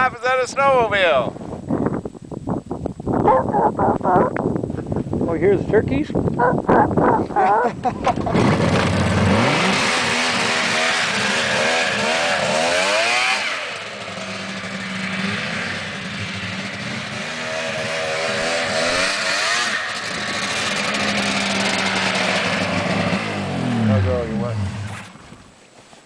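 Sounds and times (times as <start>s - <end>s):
snowmobile engine revving: 7.4s - 25.2s.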